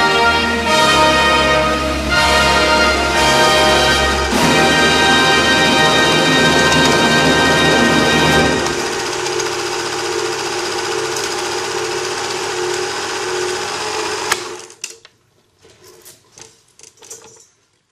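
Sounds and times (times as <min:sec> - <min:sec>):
small machine whirring and rattling: 0:08.6 - 0:17.8.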